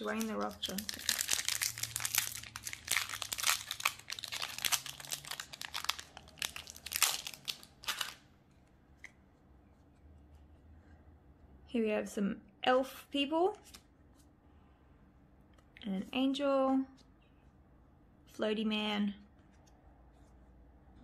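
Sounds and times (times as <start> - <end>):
foil wrapper crinkling: 0.0 - 8.2.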